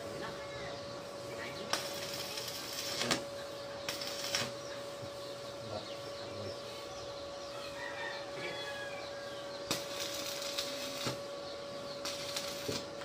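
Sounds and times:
steady hum: 0.0 - 13.0
welding arc crackling: 1.1 - 5.1, 9.6 - 13.0.

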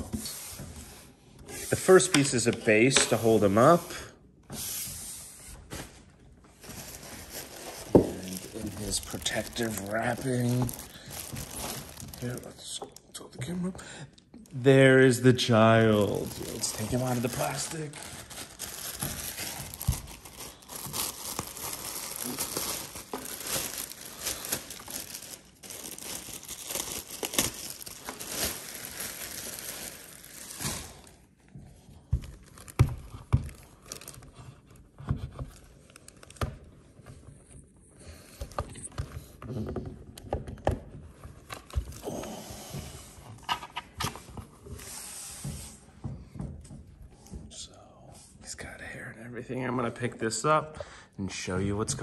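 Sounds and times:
plastic wrapping crinkling: 6.5 - 13.0, 14.8 - 31.4, 32.1 - 34.8.

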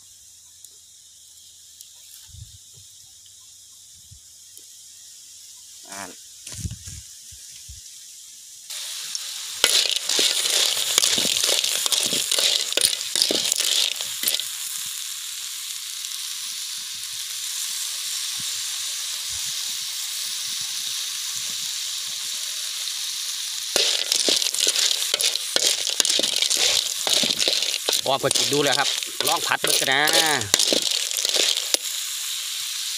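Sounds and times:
snails sizzling in a wok: 0.0 - 32.9
metal spoon scraping a pan: 9.6 - 14.5, 23.8 - 31.8
shells clattering: 9.6 - 14.5, 23.8 - 31.9.

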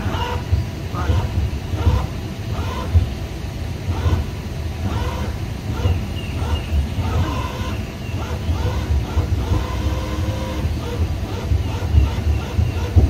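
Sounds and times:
wind buffeting microphone: 2.9 - 13.0.

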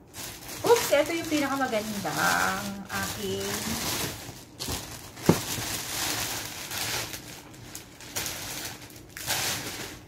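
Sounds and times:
plastic bags rustling: 0.0 - 10.0.

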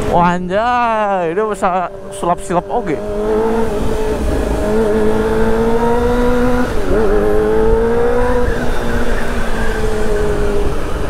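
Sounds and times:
motorcycle engine accelerating: 0.0 - 11.0
wind rumble: 0.0 - 11.0.

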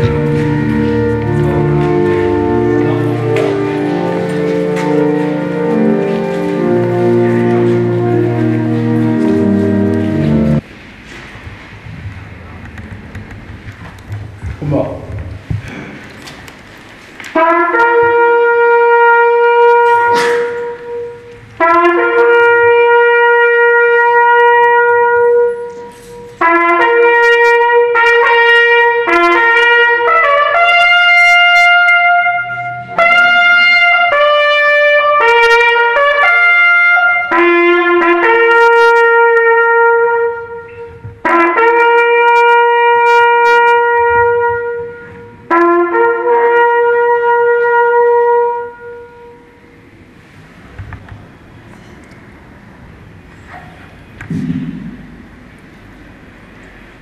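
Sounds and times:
bugle playing slow call: 0.0 - 10.6, 17.3 - 49.7.

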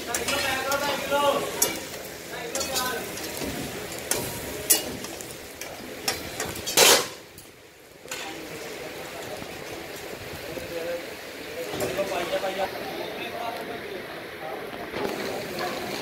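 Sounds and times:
metal ladles scraping woks: 0.0 - 10.2
meat sizzling and frying: 0.0 - 13.8, 14.6 - 16.0.

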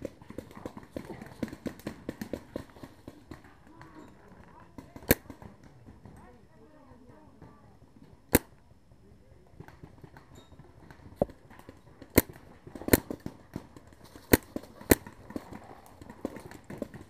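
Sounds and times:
paintball gun cracks: 5.0 - 5.5, 8.3 - 8.6, 12.0 - 13.6, 14.2 - 15.5.

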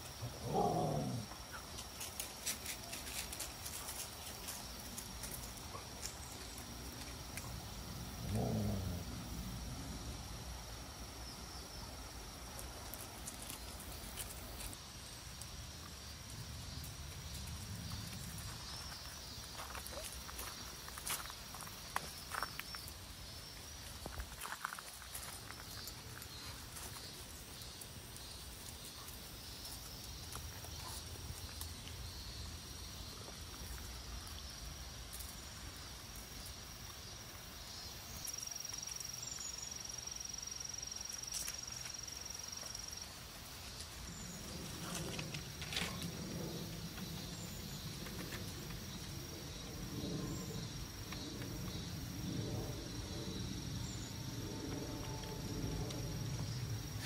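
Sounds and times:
low outdoor rumble: 43.8 - 57.0.

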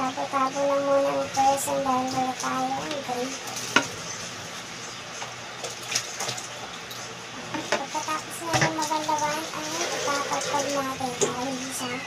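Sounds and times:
water splashing over plastic containers: 5.5 - 12.0.

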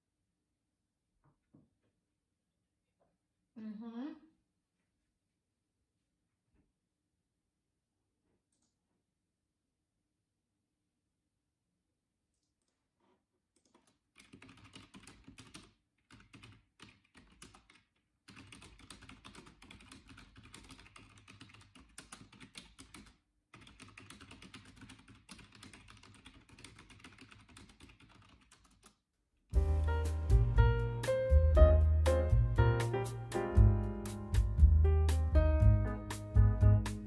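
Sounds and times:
computer keyboard typing: 13.6 - 29.0
piano music: 29.6 - 37.0.

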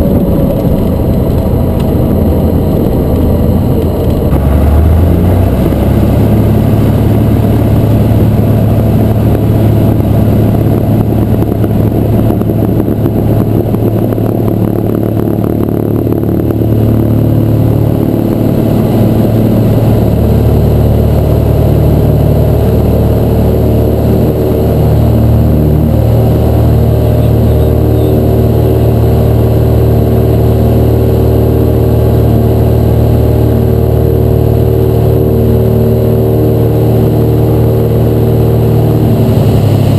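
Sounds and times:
airplane engine and propeller drone: 0.0 - 39.9.

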